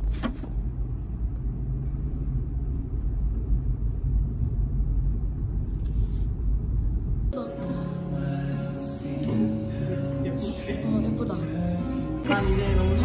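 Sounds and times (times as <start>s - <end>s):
steady low rumble: 0.6s - 9.0s.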